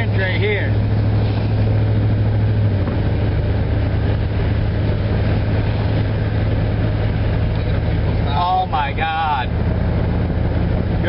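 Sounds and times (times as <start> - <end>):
car engine drone: 0.0 - 11.0
tyres hissing on wet road: 0.2 - 2.6.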